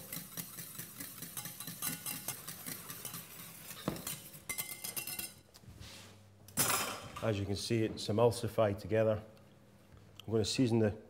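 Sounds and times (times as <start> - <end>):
whisk knocking pan: 0.0 - 5.1
whisk scraping saucepan: 0.0 - 5.4.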